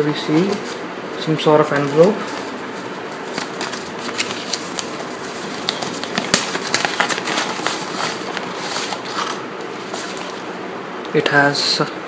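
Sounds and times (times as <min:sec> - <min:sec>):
paper envelope rustling: 0:01.6 - 0:10.5
paper snap: 0:03.3 - 0:09.4.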